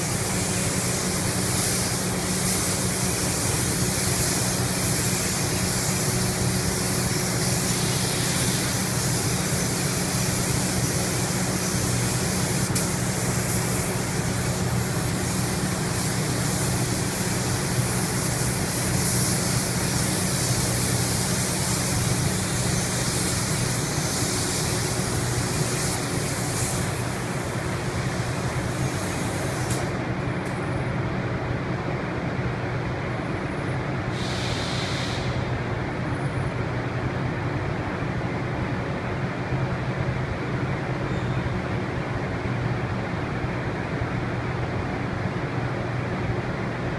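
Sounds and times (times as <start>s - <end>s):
spray gun hissing: 0.0s - 30.0s, 34.1s - 35.5s.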